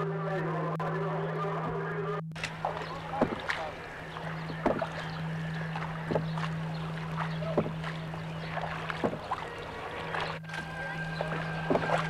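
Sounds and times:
steady low hum: 0:00.0 - 0:12.0
paddle strokes in water: 0:02.4 - 0:12.0.

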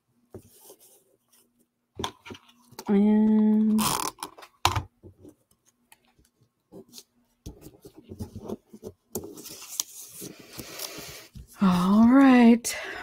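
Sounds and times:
paper rustling and scraping: 0:06.8 - 0:11.5.

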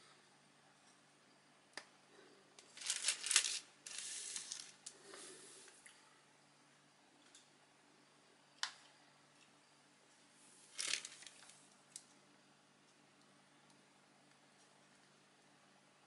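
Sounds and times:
faint steady hum: 0:00.0 - 0:16.0
plastic bag rustling: 0:02.7 - 0:04.9, 0:10.6 - 0:11.6.

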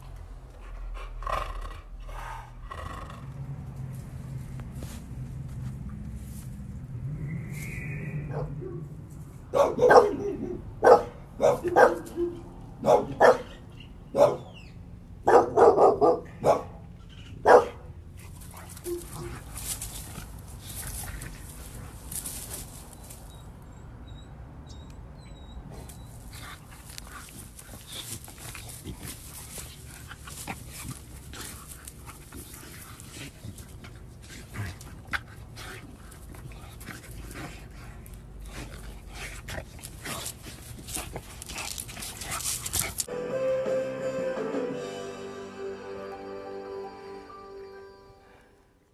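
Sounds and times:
dogs play-fighting on grass: 0:00.0 - 0:14.7, 0:15.3 - 0:43.1
dog barking: 0:08.3 - 0:08.8, 0:09.5 - 0:14.6, 0:15.2 - 0:16.8, 0:17.4 - 0:17.9.

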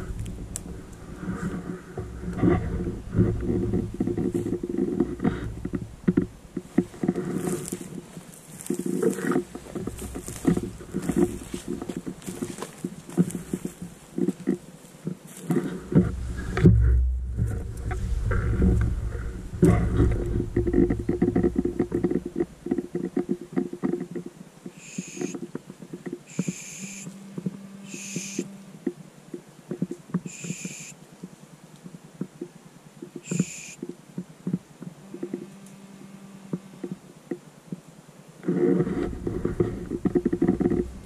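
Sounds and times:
low rumble: 0:00.0 - 0:14.0, 0:15.7 - 0:23.2, 0:38.8 - 0:41.0
footsteps crunching through undergrowth: 0:00.0 - 0:23.8
short high-pitched calls: 0:24.8 - 0:25.4, 0:26.3 - 0:27.2, 0:27.8 - 0:28.6, 0:30.3 - 0:31.0, 0:33.2 - 0:33.8.

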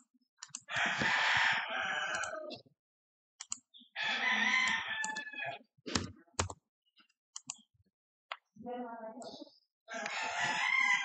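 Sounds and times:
computer mouse clicks: 0:00.0 - 0:02.6, 0:03.4 - 0:03.7, 0:04.6 - 0:07.7
rooster crowing: 0:00.7 - 0:02.6, 0:04.0 - 0:05.6, 0:09.9 - 0:11.0.

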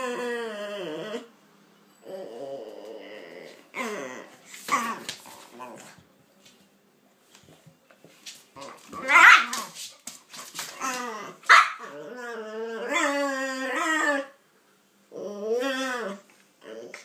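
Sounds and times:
dog barking: 0:11.5 - 0:11.9.

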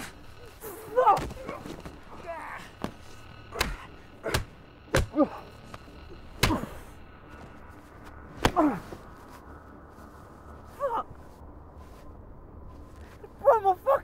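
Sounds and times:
punches landing: 0:02.8 - 0:06.8, 0:08.3 - 0:08.8
pained grunts: 0:06.4 - 0:06.9.

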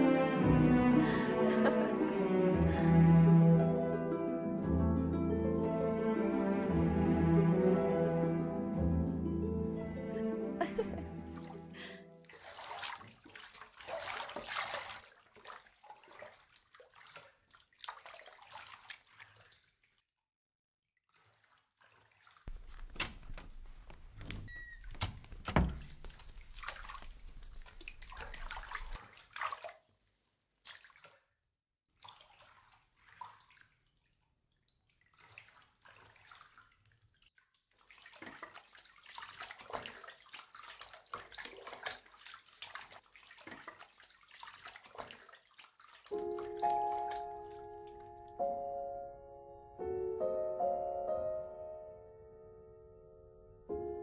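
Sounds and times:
bathwater sloshing and dripping: 0:10.7 - 0:20.2, 0:21.0 - 0:48.2.

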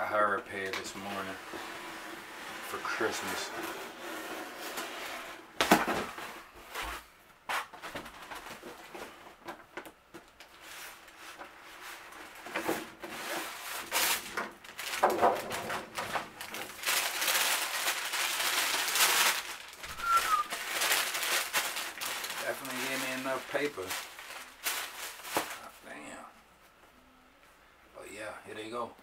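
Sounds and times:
tissue paper rustling: 0:10.5 - 0:25.9.

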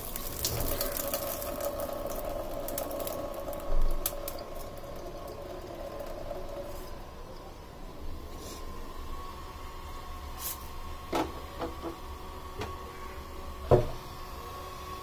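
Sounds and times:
faint steady hum: 0:00.0 - 0:15.0
pressure cooker knocking on stove grate: 0:13.7 - 0:14.0.

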